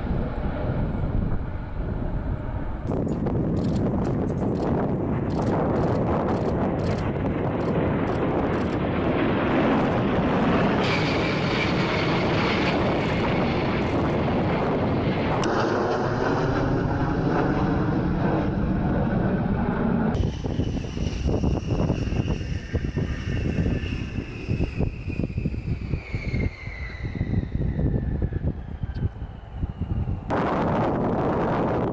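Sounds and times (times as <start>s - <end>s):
high engine whine: 0.0s - 31.9s
jet engine rumble: 0.0s - 31.9s.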